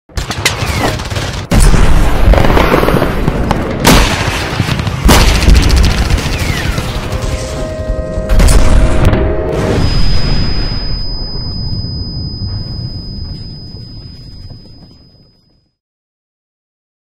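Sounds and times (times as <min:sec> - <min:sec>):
gunfire: 0:00.2 - 0:07.5
low rumble: 0:07.6 - 0:15.3.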